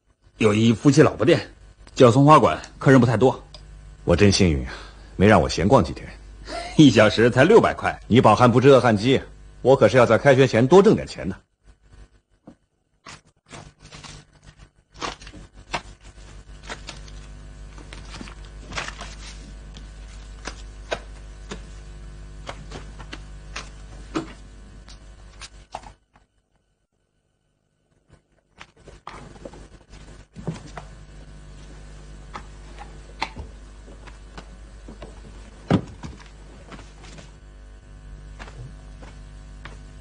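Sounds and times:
low steady hum: 0:00.0 - 0:40.0
packets and objects rustling: 0:13.0 - 0:21.5.

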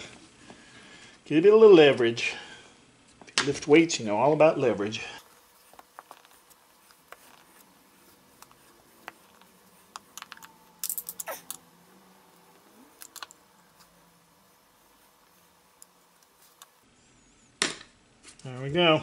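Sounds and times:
hand tools clicking and tapping: 0:05.7 - 0:11.7, 0:12.5 - 0:13.9.

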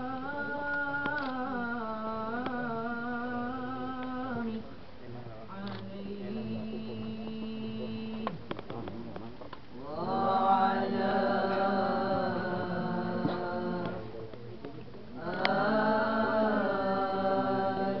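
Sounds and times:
boys chanting together: 0:09.9 - 0:14.1, 0:15.2 - 0:18.0.

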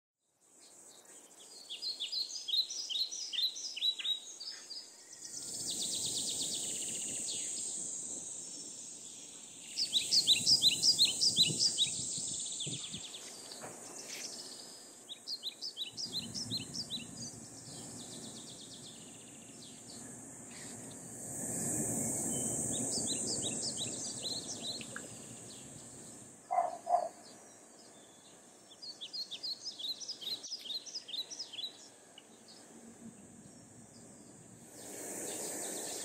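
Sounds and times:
songbird chirping: 0:00.5 - 0:21.1, 0:21.8 - 0:36.0
high-pitched insect buzz: 0:05.3 - 0:14.5, 0:15.2 - 0:27.0, 0:34.2 - 0:36.0.

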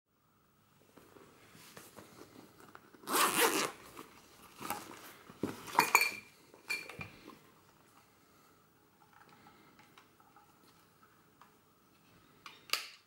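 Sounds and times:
zipper pulled open: 0:02.9 - 0:04.0.

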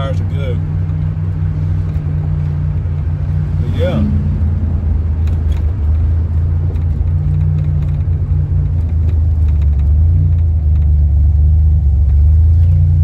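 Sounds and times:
car engine droning: 0:00.0 - 0:13.0
road noise: 0:00.0 - 0:13.0.

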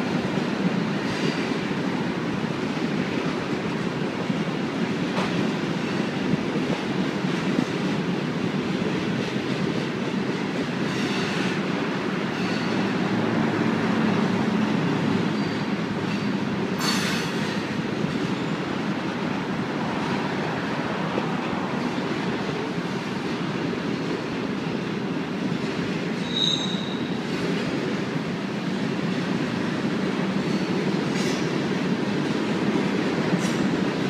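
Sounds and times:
train wheels rumbling on rail: 0:00.0 - 0:34.0
high wheel squeal: 0:12.3 - 0:12.9, 0:15.3 - 0:17.7, 0:26.2 - 0:27.2.

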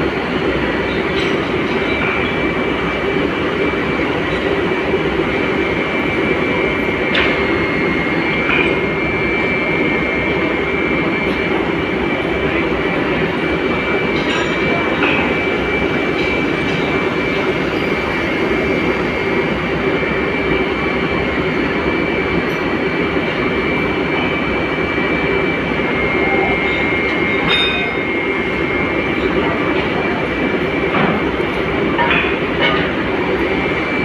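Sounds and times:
foundry machinery noise: 0:00.0 - 0:34.0
high-pitched whine: 0:00.0 - 0:34.0.

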